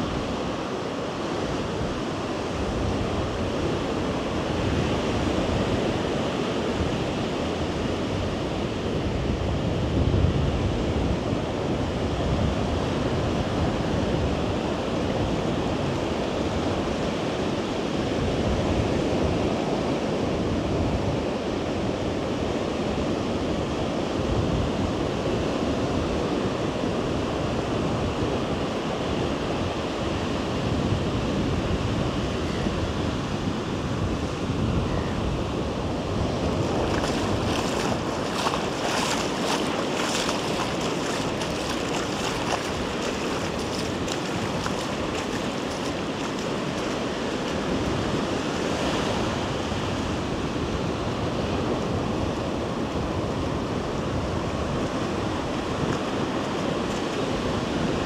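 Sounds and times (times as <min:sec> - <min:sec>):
ocean surf washing onto beach: 0:21.4 - 0:58.0
wind buffeting microphone: 0:30.6 - 0:58.0.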